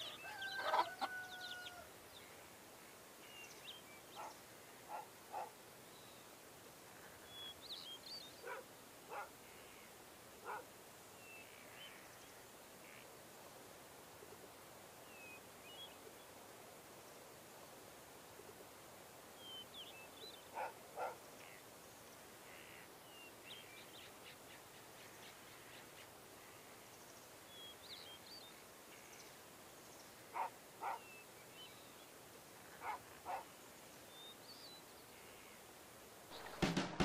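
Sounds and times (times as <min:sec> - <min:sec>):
small birds chirping: 0:03.2 - 0:13.1, 0:19.4 - 0:35.7.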